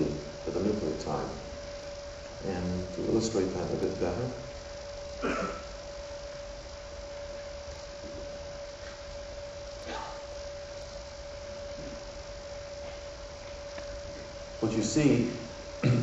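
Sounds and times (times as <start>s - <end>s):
low hiss: 0.0s - 16.0s
steady electrical hum: 0.0s - 16.0s.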